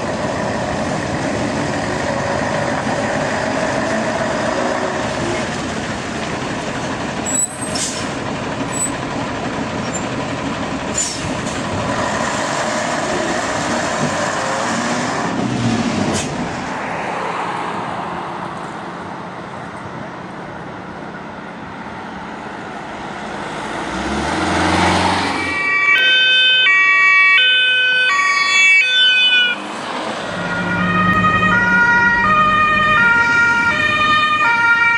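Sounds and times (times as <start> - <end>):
heavy truck: 0.0 - 34.9
passing vehicles: 0.0 - 34.9
two-tone police siren: 25.3 - 29.6, 30.3 - 34.9.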